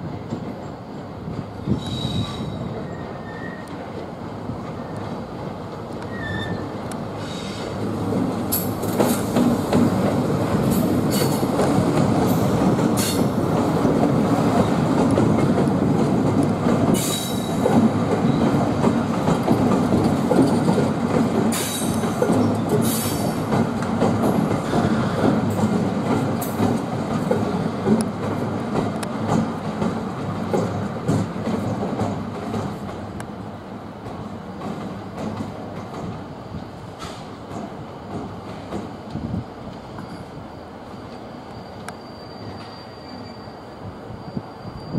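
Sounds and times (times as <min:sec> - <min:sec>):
diesel locomotives rumbling: 0:00.0 - 0:44.9
wheels clacking over rail joints: 0:03.7 - 0:33.3.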